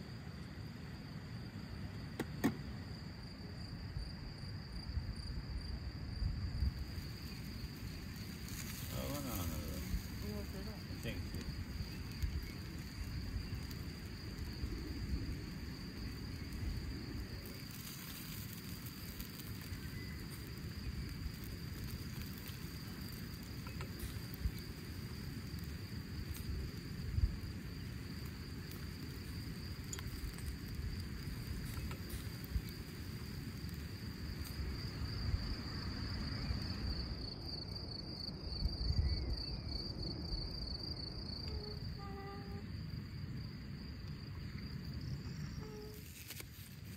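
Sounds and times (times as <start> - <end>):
crickets chirping: 0.0 - 46.9.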